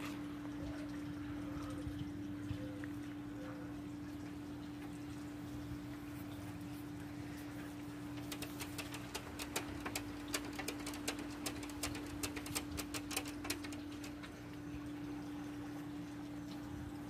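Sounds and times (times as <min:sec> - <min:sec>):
dog claws scratching on glass door: 0:08.1 - 0:14.3.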